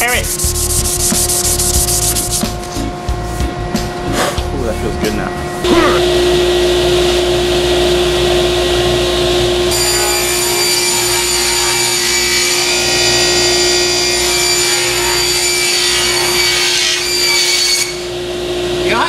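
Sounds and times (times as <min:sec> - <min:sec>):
table saw cutting panel: 0:05.6 - 0:19.0.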